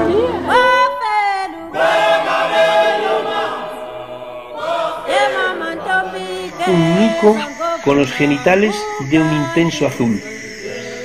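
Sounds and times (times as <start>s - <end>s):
choir singing long notes: 0.0s - 11.0s.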